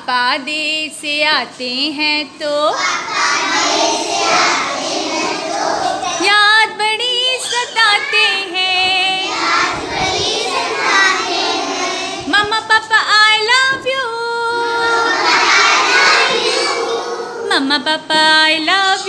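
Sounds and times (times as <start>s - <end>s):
children singing: 2.8s - 6.3s, 7.1s - 12.4s, 14.4s - 17.7s.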